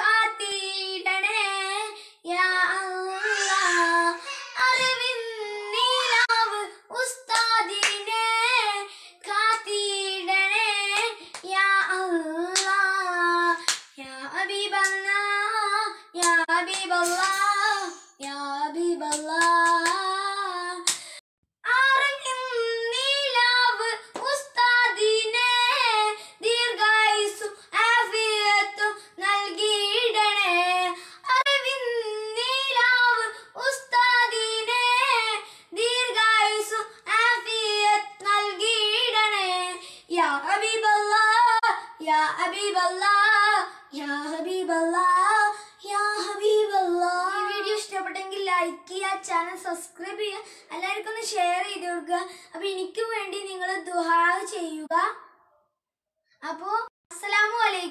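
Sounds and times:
boy singing unaccompanied: 0.0s - 20.9s, 21.6s - 55.0s.

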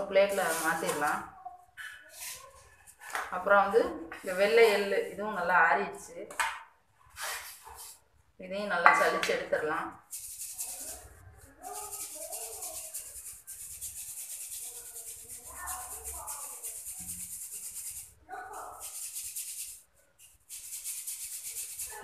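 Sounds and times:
seeds rattling in a steel sieve: 10.0s - 22.0s.

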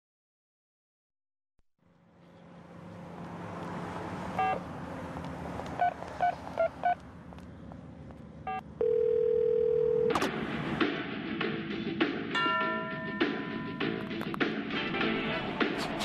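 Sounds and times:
phone line tone: 4.4s - 4.6s, 8.5s - 10.2s
telephone keypad beeps: 4.4s - 4.6s.

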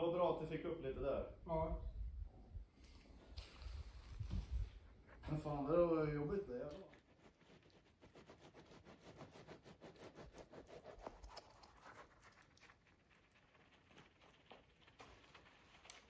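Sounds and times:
faint patter of tiny clicks: 11.0s - 16.0s.

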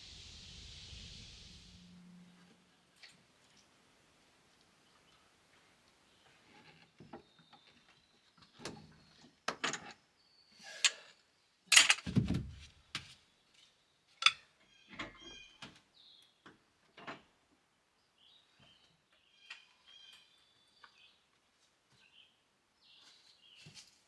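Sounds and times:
birds chirping: 18.0s - 21.4s.

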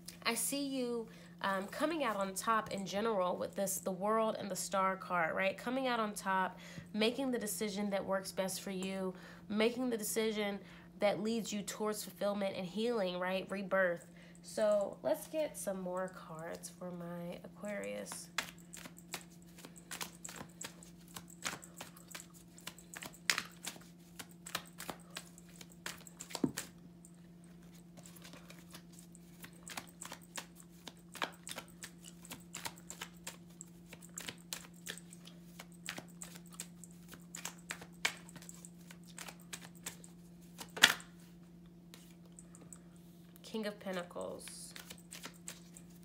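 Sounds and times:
steady low hum: 0.0s - 46.0s
cards being shuffled: 18.3s - 26.8s, 27.5s - 41.3s, 44.7s - 46.0s.

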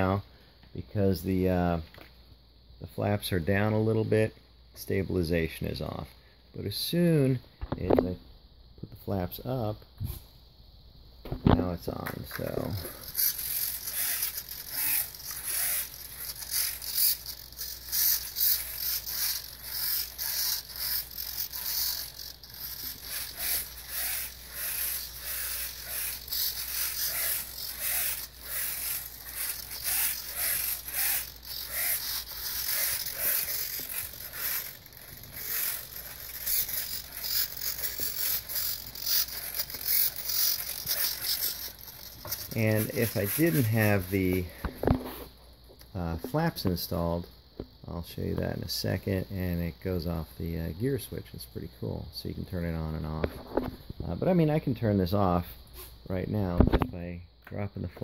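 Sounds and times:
servos whirring: 11.9s - 45.4s
hand rubbing foam: 12.4s - 45.4s.

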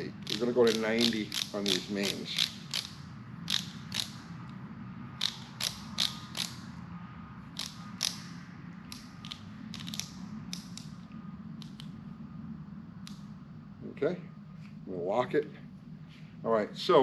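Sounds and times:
low hum: 0.0s - 17.0s
torque wrench clicks: 0.2s - 4.2s, 5.2s - 6.6s, 7.6s - 8.3s, 8.9s - 10.9s.

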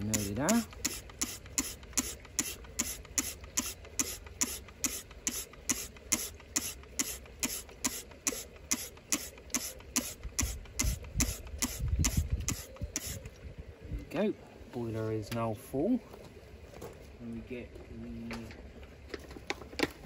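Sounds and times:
hand pump clicking: 0.0s - 13.3s.

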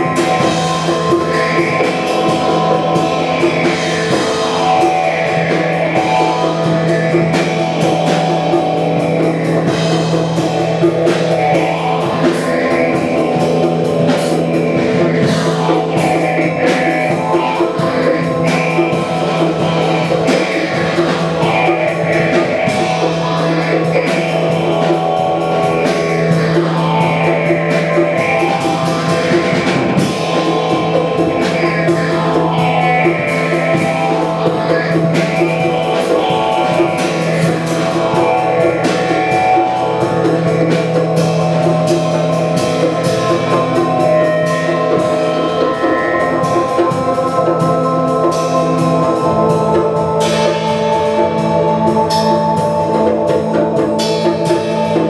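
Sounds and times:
live rock band playing: 0.0s - 55.0s.

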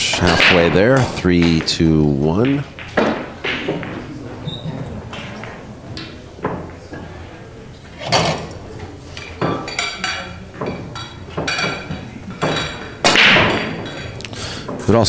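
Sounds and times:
pool balls clacking: 0.0s - 15.0s.

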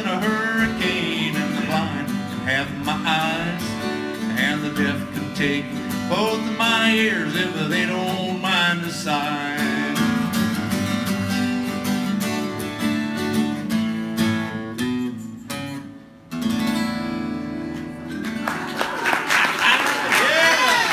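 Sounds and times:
acoustic guitar playing: 0.0s - 19.8s
audience voices and cheers: 18.4s - 20.9s.

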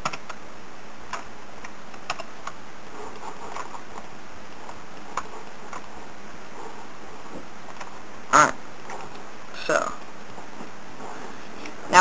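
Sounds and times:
keyboard and mouse clicks: 0.0s - 0.4s, 1.1s - 5.9s, 7.6s - 8.0s.

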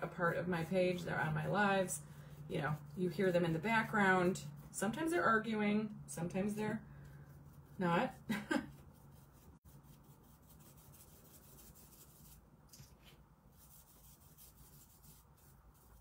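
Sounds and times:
scratchy rubbing of paintbrush and paper: 7.2s - 16.0s.

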